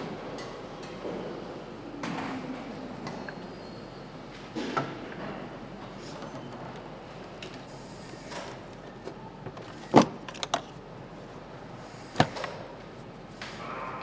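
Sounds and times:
factory background noise: 0:00.0 - 0:14.0
clicks of parts being fitted: 0:08.3 - 0:10.8.

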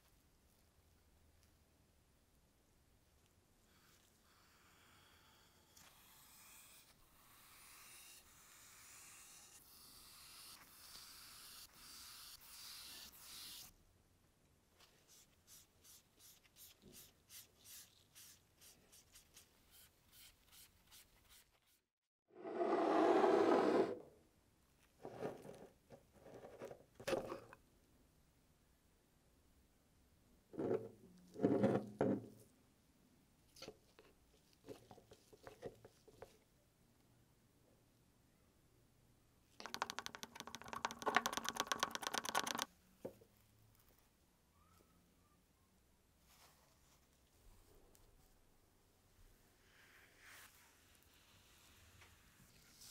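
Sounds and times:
stick clicking against glass jar: 0:39.6 - 0:42.7.

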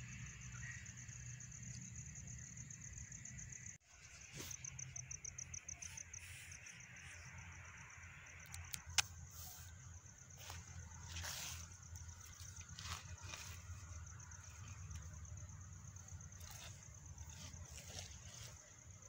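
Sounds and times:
insect chirping trill: 0:00.0 - 0:19.0
sharp click: 0:08.4 - 0:09.2.

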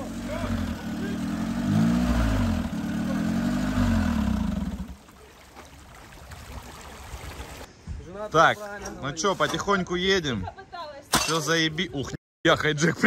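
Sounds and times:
engine revving hard: 0:00.0 - 0:05.0.

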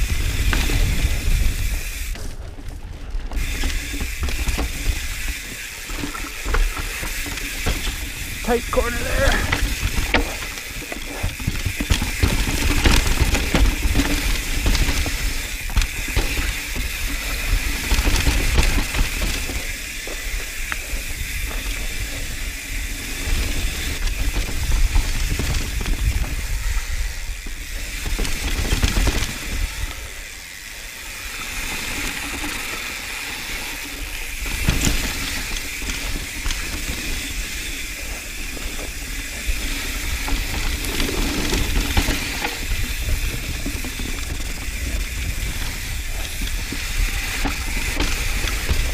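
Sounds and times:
wind and tyre noise: 0:00.0 - 0:48.9
bike clattering over rocks: 0:00.1 - 0:26.5, 0:27.6 - 0:29.8, 0:31.6 - 0:48.9.

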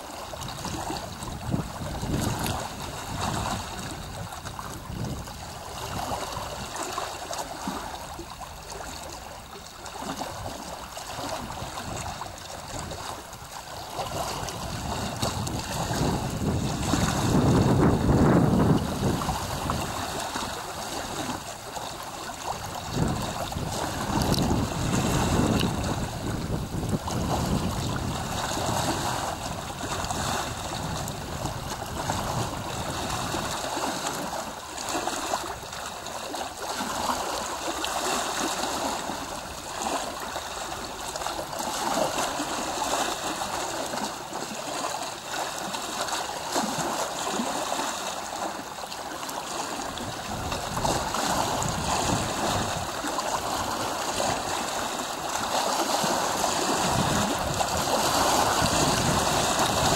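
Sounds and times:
small waves lapping: 0:00.0 - 0:59.9
wind buffeting microphone: 0:00.3 - 0:06.9, 0:13.8 - 0:35.8, 0:49.8 - 0:59.9.

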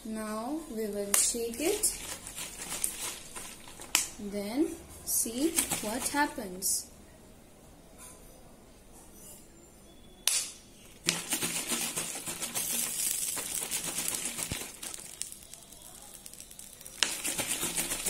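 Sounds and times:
plastic bottle crackling rattle: 0:01.2 - 0:04.2, 0:05.3 - 0:06.4, 0:11.0 - 0:18.0.

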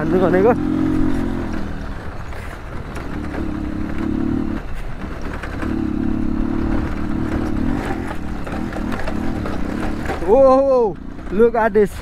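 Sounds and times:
bike rattling over stones: 0:00.0 - 0:12.0
motorcycle engine revving: 0:00.0 - 0:12.0.

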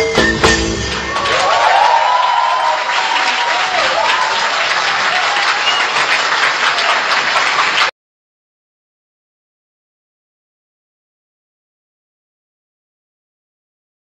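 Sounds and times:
music track: 0:00.0 - 0:01.4
audience applauding: 0:00.8 - 0:08.0
faint whistles: 0:05.6 - 0:06.0.

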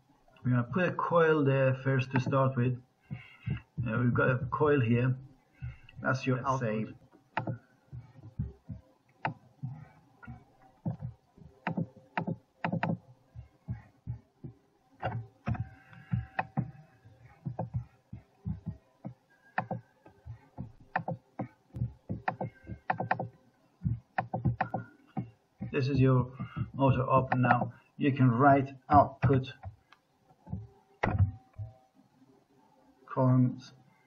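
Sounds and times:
faint steady tones: 0:00.0 - 0:34.0
mouse and keyboard clicks: 0:07.4 - 0:07.6, 0:10.8 - 0:13.0, 0:18.6 - 0:19.8, 0:20.5 - 0:23.3, 0:24.2 - 0:25.3, 0:26.4 - 0:27.7.

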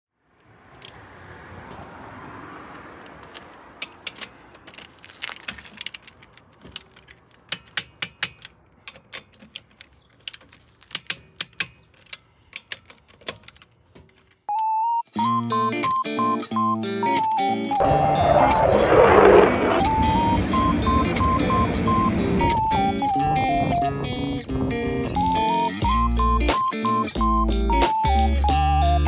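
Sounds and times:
socket wrench clicking on lug nuts: 0:03.1 - 0:04.8, 0:05.5 - 0:13.7
steady high tone: 0:17.5 - 0:23.8
soft rushing noise: 0:17.8 - 0:22.4.

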